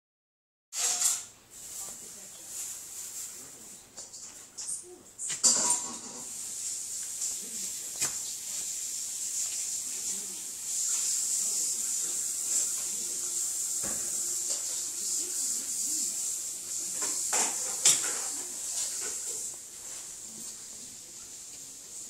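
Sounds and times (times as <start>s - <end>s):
dog fur rubbing on carpet: 1.5s - 3.8s, 6.2s - 13.7s, 14.5s - 22.0s.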